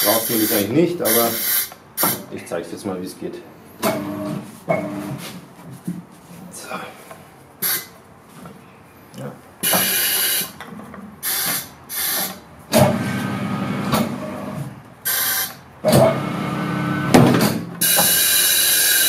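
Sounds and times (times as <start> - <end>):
compressed air hisses: 0.0 - 2.2, 7.6 - 7.9, 11.2 - 12.4.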